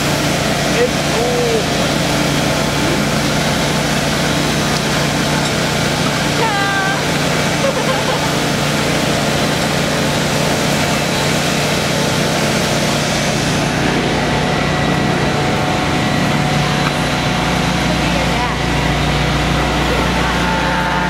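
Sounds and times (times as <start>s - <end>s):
crushed ice rushing through hose: 0.0s - 15.5s
ice blower engine noise: 0.0s - 21.0s.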